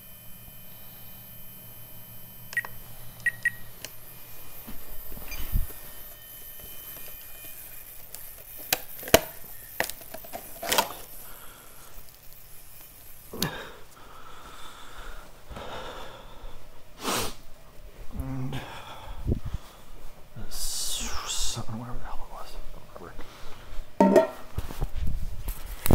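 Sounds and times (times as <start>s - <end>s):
breathing: 11.2s - 12.1s, 13.4s - 17.4s, 18.5s - 20.1s, 23.2s - 24.0s.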